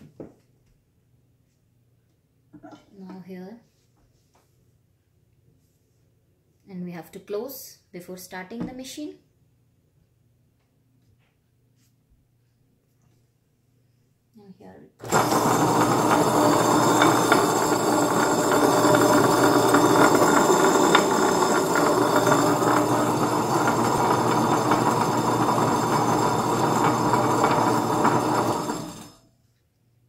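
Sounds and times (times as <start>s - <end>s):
grinder motor hum and rumble: 15.0s - 29.2s.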